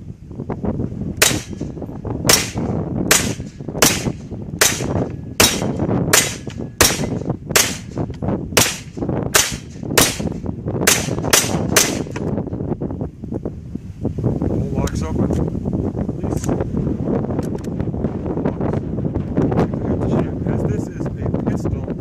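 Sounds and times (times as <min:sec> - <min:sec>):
wind rumble on microphone: 0:00.0 - 0:22.0
pistol shots: 0:01.2 - 0:01.7, 0:02.3 - 0:08.0, 0:08.6 - 0:12.3.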